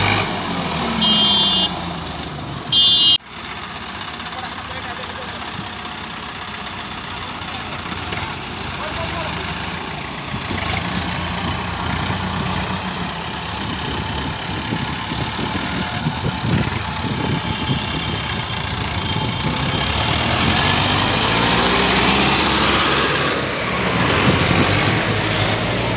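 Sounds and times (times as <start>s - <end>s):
diesel tractor engine passing: 0.0s - 25.9s.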